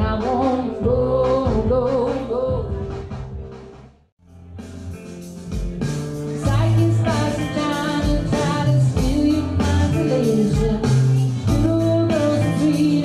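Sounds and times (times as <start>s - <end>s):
person singing: 0.0s - 3.0s, 6.3s - 13.0s
guitar: 0.0s - 3.6s, 4.2s - 13.0s
bass guitar: 0.0s - 13.0s.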